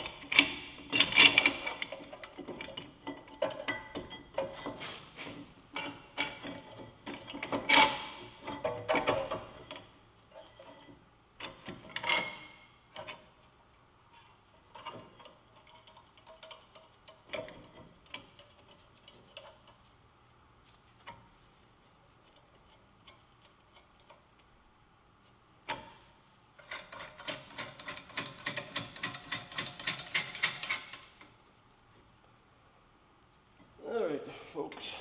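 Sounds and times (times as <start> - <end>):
hand ratchet clicking: 26.6 - 31.3.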